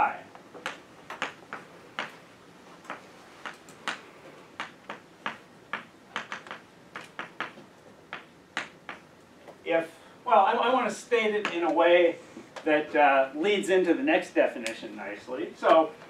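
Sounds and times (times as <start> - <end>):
chalk tapping on blackboard: 2.9 - 9.1.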